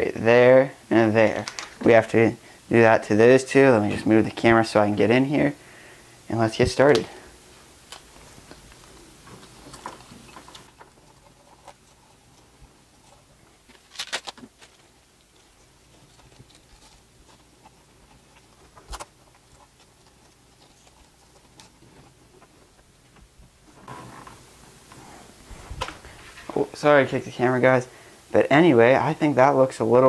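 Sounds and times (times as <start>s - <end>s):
cables being bundled: 1.2s - 2.2s, 6.5s - 27.2s.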